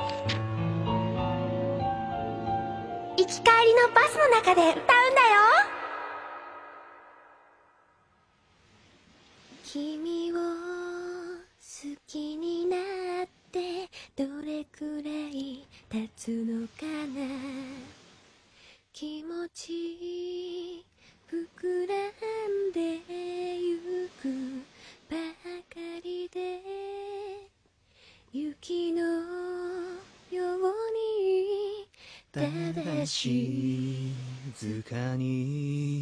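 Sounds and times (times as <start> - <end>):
woman singing unaccompanied: 9.6 - 18.0, 18.9 - 27.5, 28.3 - 34.1.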